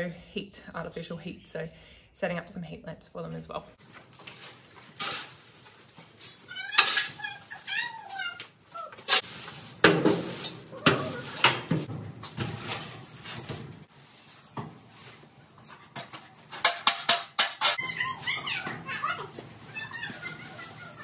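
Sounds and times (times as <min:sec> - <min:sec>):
hay being raked: 0:04.2 - 0:06.5, 0:09.0 - 0:11.9, 0:12.5 - 0:15.7
shovel scraping concrete floor: 0:04.2 - 0:08.2, 0:08.9 - 0:17.8
tools knocking against walls: 0:16.0 - 0:17.8.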